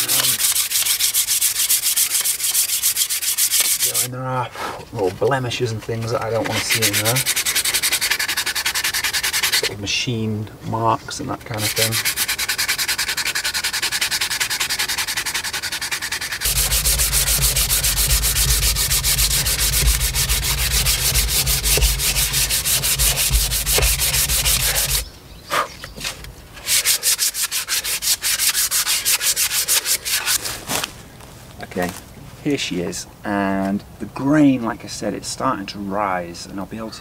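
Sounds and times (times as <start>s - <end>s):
sandpaper scraping wood: 0.0s - 4.1s, 5.0s - 9.8s, 11.1s - 25.0s, 26.0s - 30.6s
deep rumble: 16.5s - 25.0s.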